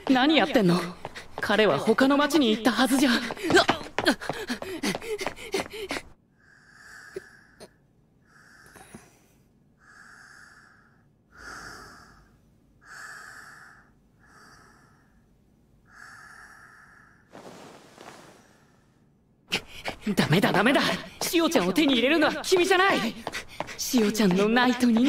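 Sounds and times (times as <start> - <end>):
quick running footsteps: 0.0 - 6.2, 19.5 - 25.0
slow regular breathing: 4.2 - 20.0, 23.0 - 25.0.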